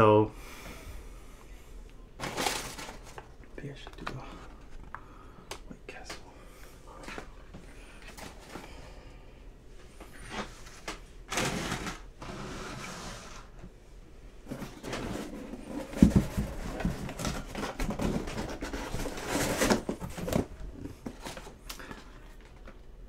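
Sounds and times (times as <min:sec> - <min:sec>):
cardboard box rustling and knocking: 0:14.5 - 0:21.5.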